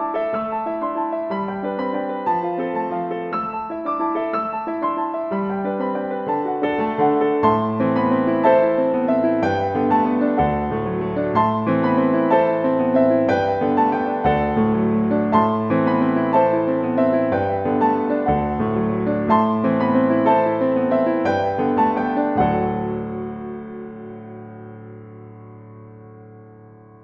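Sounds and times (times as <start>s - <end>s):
lo-fi jazz piano music: 0.0s - 27.0s.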